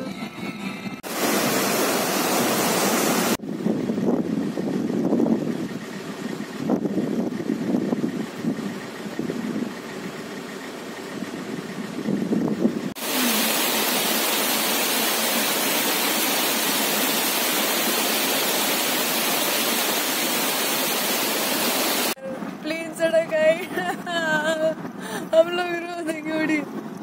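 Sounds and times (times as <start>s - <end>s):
waterfall rushing over rocks: 1.0s - 3.4s, 13.0s - 22.2s.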